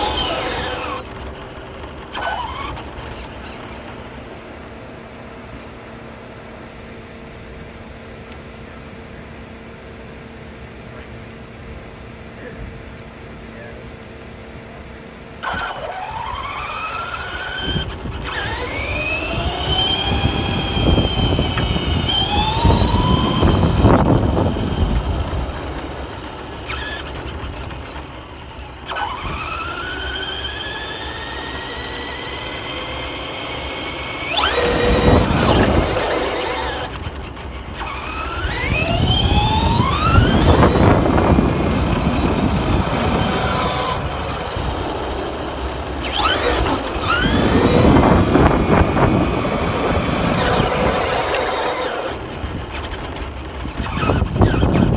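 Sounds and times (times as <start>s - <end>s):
toy car motor whining: 0.0s - 4.0s, 15.4s - 54.9s
tyres rushing on asphalt: 0.0s - 4.5s, 15.4s - 54.9s.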